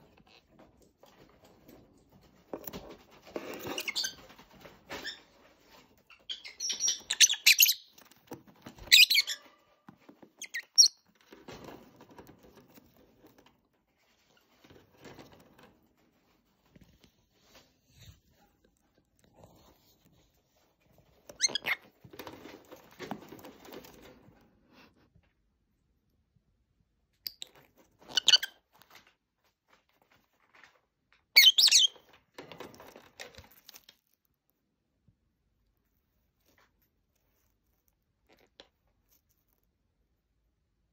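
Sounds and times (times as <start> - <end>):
lovebirds chirping: 6.1 - 8.0
soft rustling: 9.6 - 25.1.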